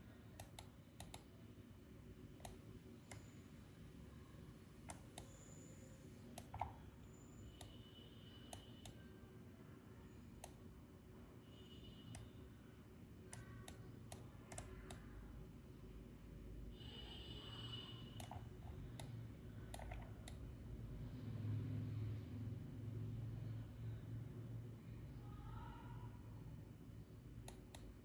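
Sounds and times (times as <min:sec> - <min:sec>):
low steady hum: 0:00.0 - 0:28.0
mouse and keyboard clicks: 0:06.4 - 0:06.8, 0:18.2 - 0:19.1, 0:19.7 - 0:20.4.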